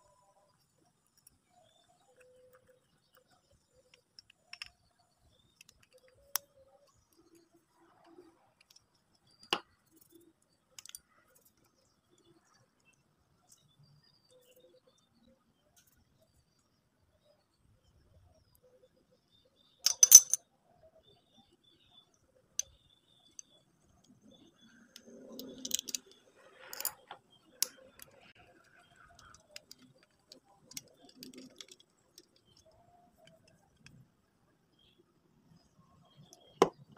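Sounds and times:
small metal parts clicking: 0:01.0 - 0:07.4, 0:08.6 - 0:11.9, 0:19.8 - 0:20.4, 0:24.9 - 0:34.0.

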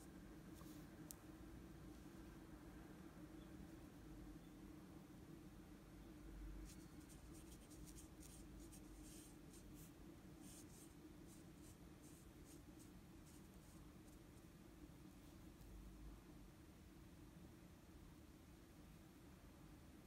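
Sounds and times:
steady low hum: 0:00.0 - 0:20.0
brush pen scratching paper: 0:06.6 - 0:14.4.

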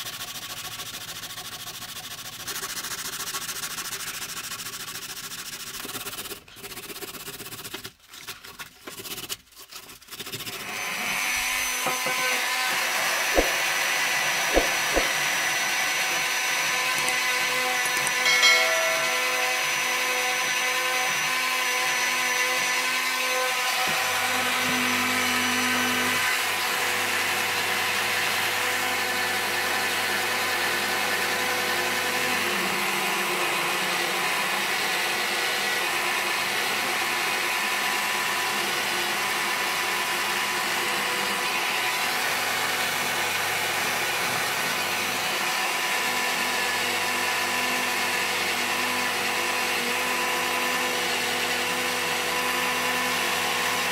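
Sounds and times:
rotary tool motor whine: 0:10.5 - 0:26.3.

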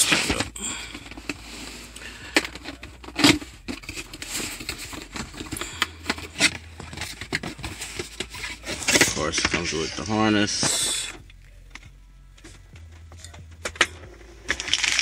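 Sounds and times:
cardboard box rustling and scraping: 0:00.0 - 0:11.0.

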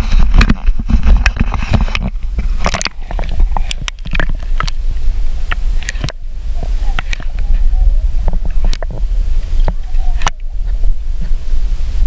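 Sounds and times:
steady low rumble: 0:00.0 - 0:12.0
water splashing and sloshing: 0:00.0 - 0:12.0.

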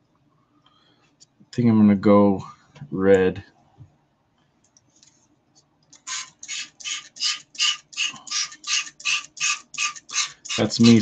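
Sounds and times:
spray bottle squirting: 0:06.0 - 0:11.0.

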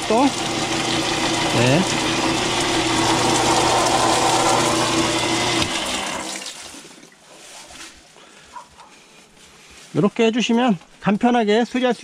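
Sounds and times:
pump motor humming: 0:00.0 - 0:07.2.

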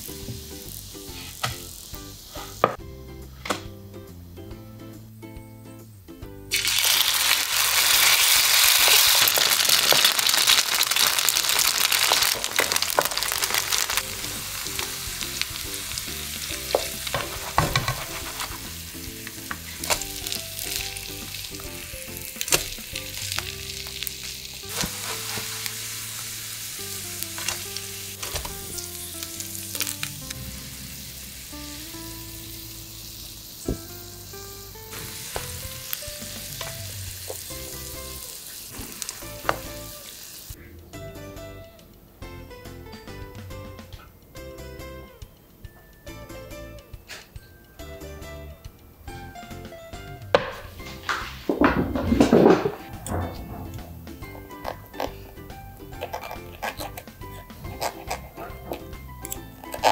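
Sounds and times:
food sizzling in hot oil: 0:00.0 - 0:02.9, 0:06.5 - 0:40.6, 0:53.7 - 0:59.9
spatula scraping a pan: 0:01.1 - 0:01.7, 0:16.5 - 0:20.0, 0:24.6 - 0:26.0, 0:54.4 - 0:59.9.

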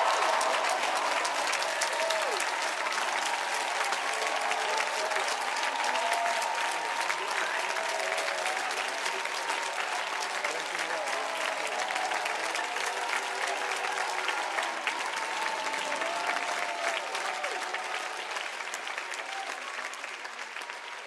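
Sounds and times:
audience applauding and cheering: 0:00.0 - 0:21.0.

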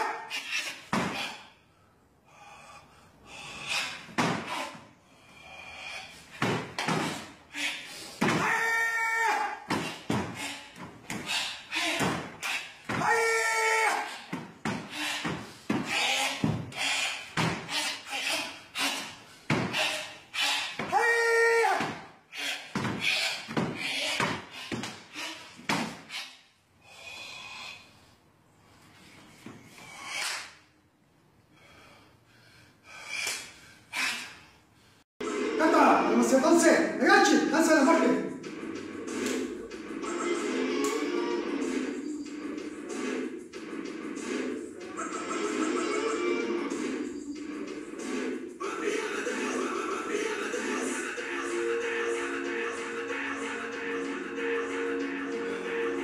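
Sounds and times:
person shouting: 0:08.2 - 0:09.7, 0:12.9 - 0:14.2, 0:20.8 - 0:22.0
bare feet stamping on wooden floor: 0:14.3 - 0:16.8, 0:19.5 - 0:19.9, 0:22.7 - 0:25.0.

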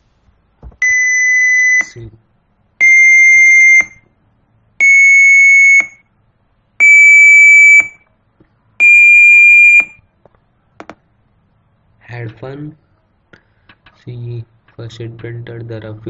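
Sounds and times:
computer speaker beeps: 0:00.8 - 0:02.1, 0:02.8 - 0:04.0, 0:08.8 - 0:10.0.

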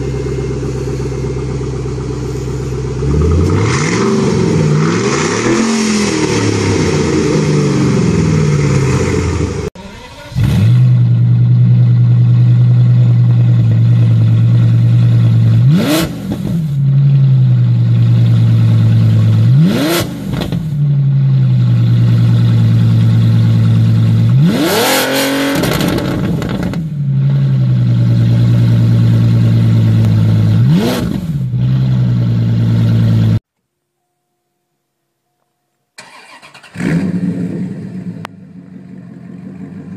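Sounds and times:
car engine revs falling: 0:00.0 - 0:09.7, 0:14.4 - 0:17.2, 0:18.1 - 0:20.8, 0:23.9 - 0:26.9
car engine idling and revving: 0:00.0 - 0:33.4, 0:36.0 - 0:39.9.

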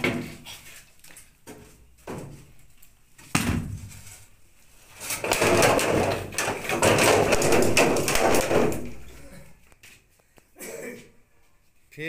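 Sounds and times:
bamboo clattering and cracking: 0:04.9 - 0:09.8.

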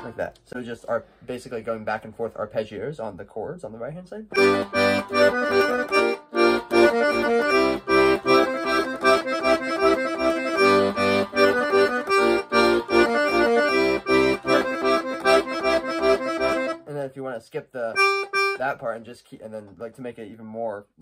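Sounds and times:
piano accordion arpeggios: 0:04.3 - 0:16.8, 0:18.0 - 0:18.7.

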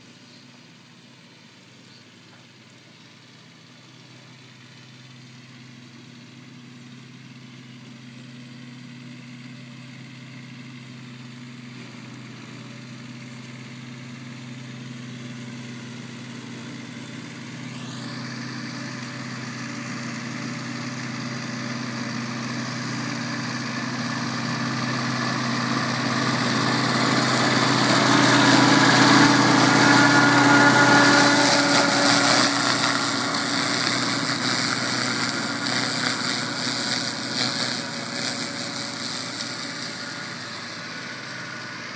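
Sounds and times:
flail mower cutting grass: 0:00.0 - 0:41.9
tractor diesel engine running: 0:00.0 - 0:41.9.

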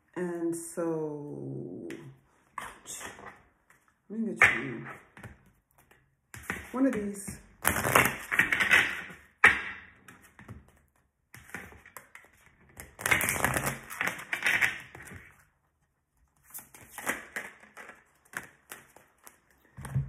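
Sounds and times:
cards being shuffled: 0:05.7 - 0:09.2, 0:10.1 - 0:15.4, 0:16.2 - 0:20.0.

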